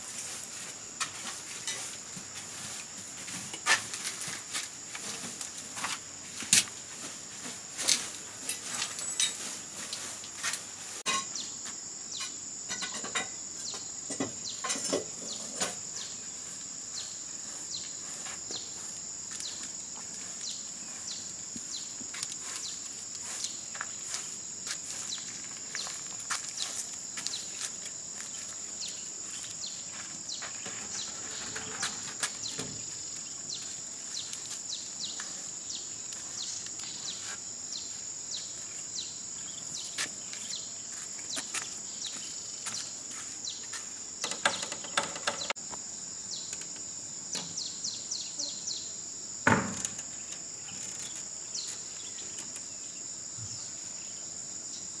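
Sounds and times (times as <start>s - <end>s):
broom sweeping concrete: 0.0s - 11.8s, 15.3s - 38.9s, 39.7s - 44.0s
high insect drone: 0.0s - 55.0s.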